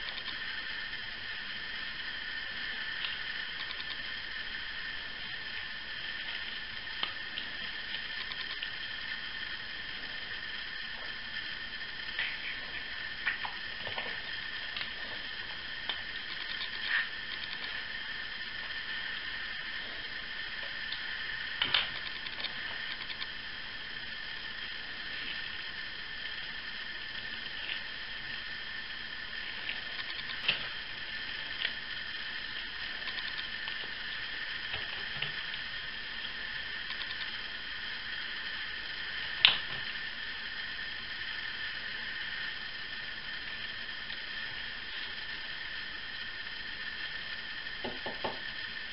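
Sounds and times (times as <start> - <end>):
faint high whine: 0.0 - 48.9
steady hiss: 0.0 - 48.9
small sharp clicks: 3.0 - 4.0, 36.9 - 37.4.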